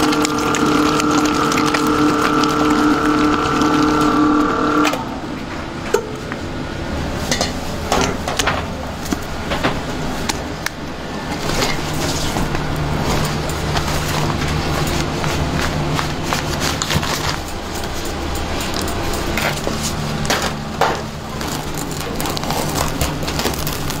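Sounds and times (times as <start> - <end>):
stand mixer whining: 0.0 - 5.6
low kitchen hum: 0.0 - 24.0.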